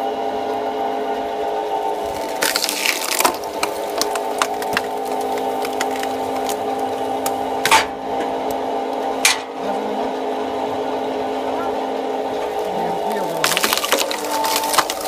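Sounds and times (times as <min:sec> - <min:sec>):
log splitter humming: 0:00.0 - 0:15.0
logs cracking and splitting: 0:01.8 - 0:07.9, 0:12.4 - 0:15.0.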